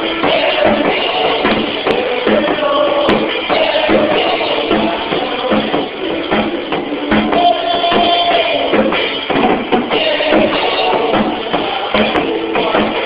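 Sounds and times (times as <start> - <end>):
band playing sustained instruments: 0.0 - 13.0
drum kit playing: 0.0 - 13.0.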